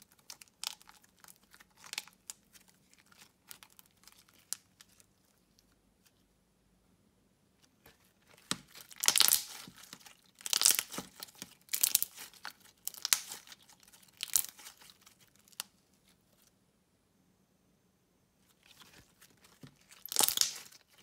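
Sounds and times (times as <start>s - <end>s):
slime crackling and popping: 0.0s - 5.1s, 8.3s - 15.8s, 18.6s - 21.0s.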